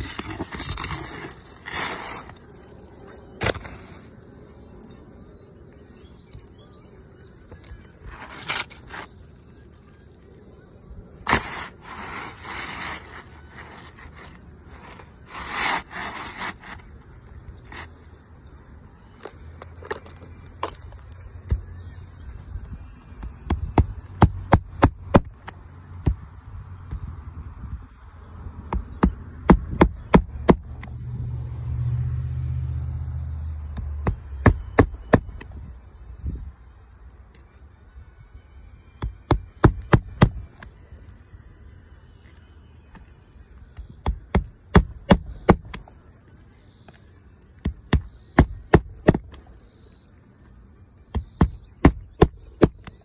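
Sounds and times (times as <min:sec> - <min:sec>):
roof shingles scraping and rustling: 0:00.0 - 0:04.1, 0:07.6 - 0:10.0, 0:11.2 - 0:17.0.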